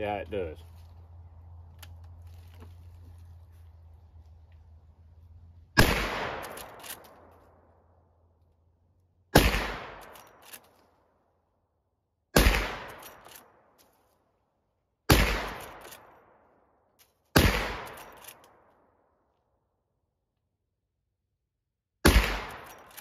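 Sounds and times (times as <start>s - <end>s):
rifle shots: 5.8s - 7.2s, 9.3s - 10.4s, 12.3s - 13.3s, 15.1s - 16.1s, 17.3s - 18.3s, 22.0s - 23.0s.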